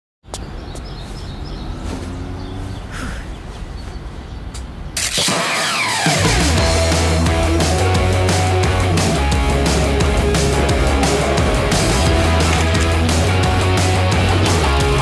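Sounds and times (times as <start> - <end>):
traffic rumble: 0.2 - 5.1
rock music with heavy bass: 5.1 - 15.0.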